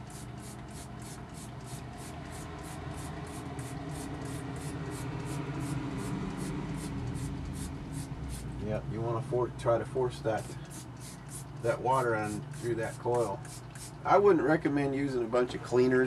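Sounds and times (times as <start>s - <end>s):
spray bottle spraying water: 0.0s - 8.6s, 10.3s - 14.0s
steady low hum: 0.0s - 15.7s.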